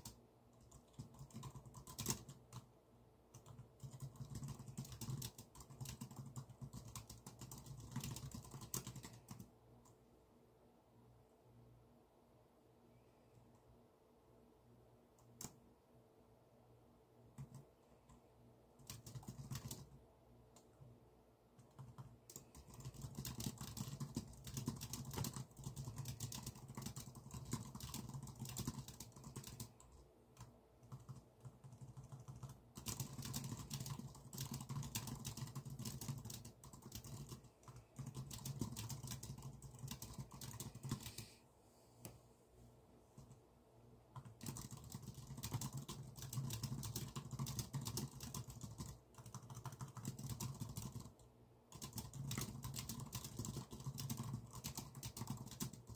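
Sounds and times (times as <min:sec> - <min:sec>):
typing on computer keyboard: 0:00.0 - 0:02.7, 0:03.3 - 0:10.0, 0:17.3 - 0:18.2, 0:18.8 - 0:20.0, 0:21.6 - 0:41.3, 0:44.1 - 0:55.9.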